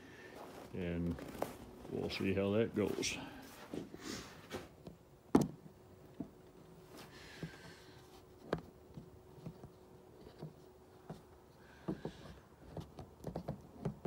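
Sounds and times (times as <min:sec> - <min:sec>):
footsteps on snow: 0:00.1 - 0:04.7.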